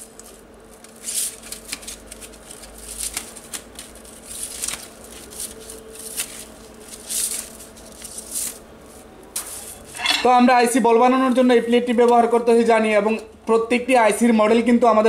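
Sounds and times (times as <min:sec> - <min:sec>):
metal plates rattling and clinking: 0:10.0 - 0:10.4.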